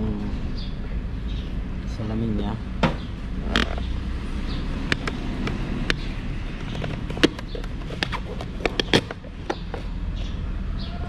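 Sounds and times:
plastic clicks and snaps: 4.9 - 6.0.

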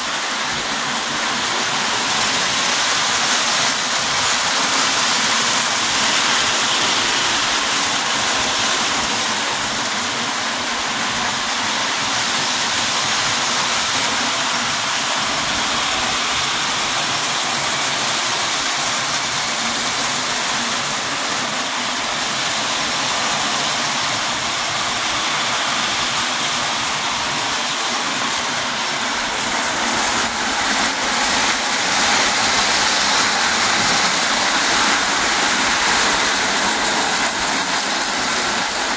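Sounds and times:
toy train rattling on track: 0.0 - 38.9
thin high whine: 13.7 - 38.9.

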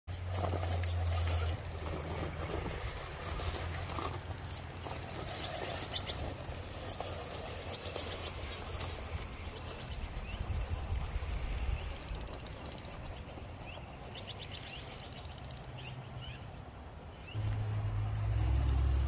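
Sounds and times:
tyres clicking and scraping on rock: 0.1 - 15.0
electric motor and gearbox running: 0.1 - 15.9, 17.4 - 19.0.

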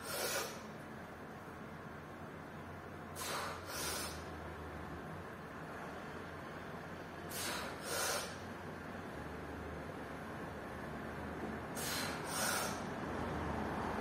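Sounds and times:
forceful hissing breaths: 0.0 - 0.8, 3.0 - 4.4, 7.2 - 8.6, 11.7 - 13.0.

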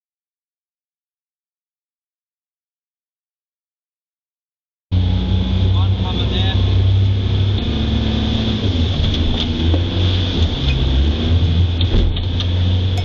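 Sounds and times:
boat engine droning: 4.9 - 13.0.

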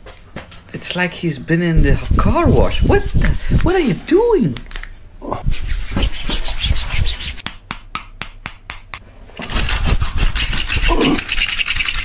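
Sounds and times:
rough rubbing: 5.4 - 7.4, 9.4 - 12.0
hands slapping skin: 5.6 - 9.0
short voice sound: 10.9 - 11.3.

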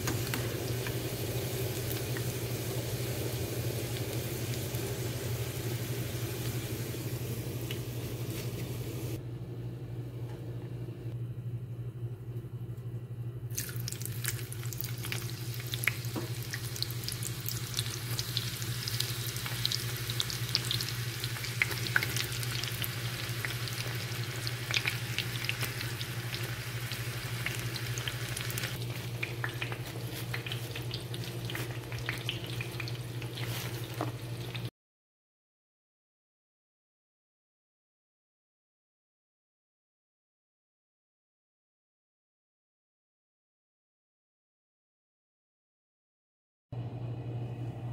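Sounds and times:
onions sizzling in hot oil: 0.0 - 9.2, 13.6 - 34.7.

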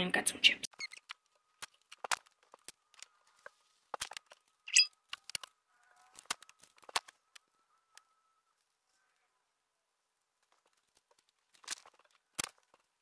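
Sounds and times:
household items clicking and knocking: 0.8 - 5.5, 6.1 - 7.2, 10.4 - 13.0.

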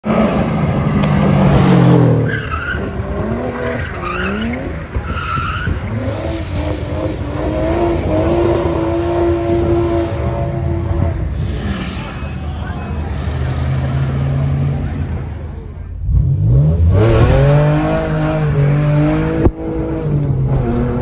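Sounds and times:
car engine revving: 0.0 - 21.0
tyres squealing on pavement: 2.2 - 6.6.

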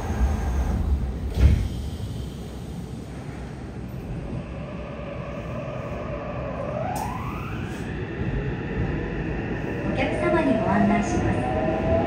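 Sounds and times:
train low rumble: 0.0 - 12.0.

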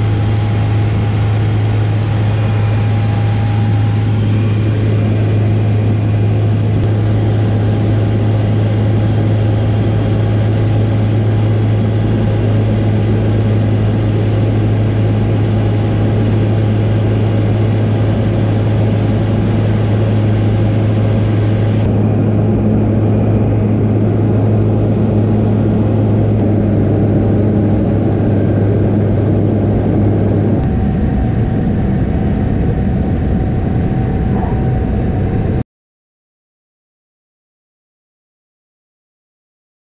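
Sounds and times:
propeller plane engine drone: 0.0 - 35.6.

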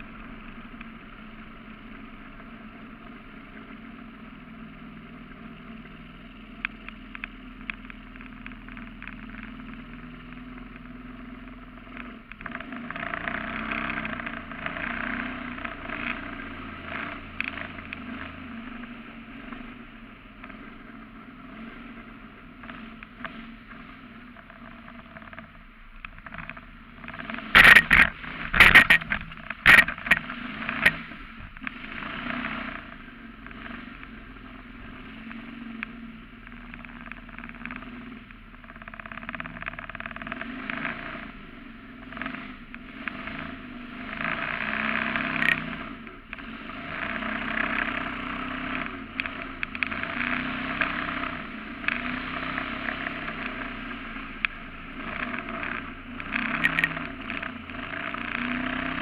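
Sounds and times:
boat motor running: 26.0 - 32.0.

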